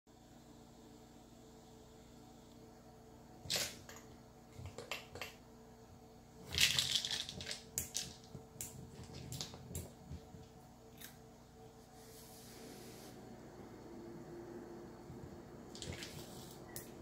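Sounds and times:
dry treats rattling: 6.5s - 8.2s.

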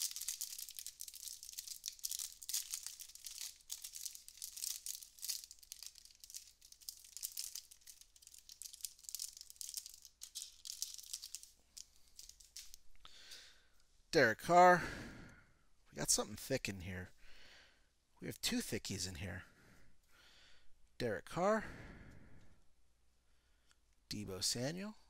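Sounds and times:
plastic wrapper crinkling: 0.0s - 13.0s.

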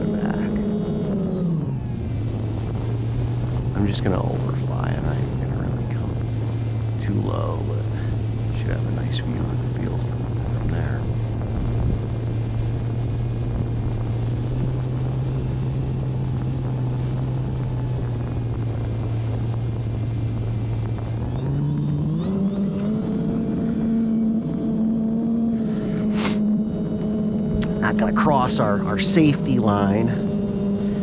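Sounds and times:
model airplane electric motor: 17.8s - 31.0s
rush of airflow: 25.2s - 26.6s.

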